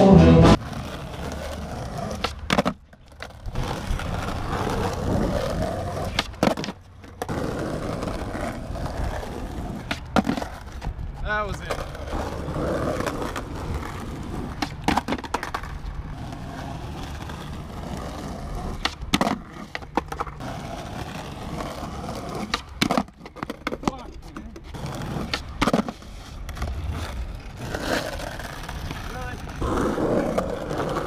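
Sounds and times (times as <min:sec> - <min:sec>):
skateboard popping and landing: 0:00.0 - 0:31.0
skateboard wheels rolling on asphalt: 0:00.0 - 0:31.0.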